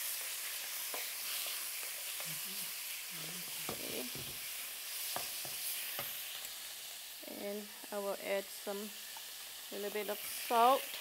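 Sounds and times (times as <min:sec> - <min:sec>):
wooden spatula scraping a wok: 0:00.0 - 0:06.5
sizzling in a hot wok: 0:00.0 - 0:11.0.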